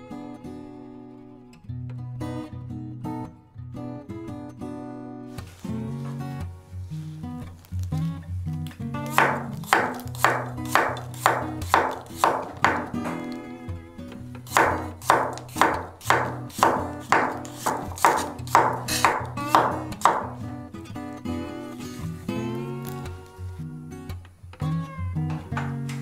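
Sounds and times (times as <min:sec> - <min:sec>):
acoustic guitar music: 0:00.0 - 0:26.0
knife slicing on wooden board: 0:09.1 - 0:13.2, 0:14.5 - 0:20.4.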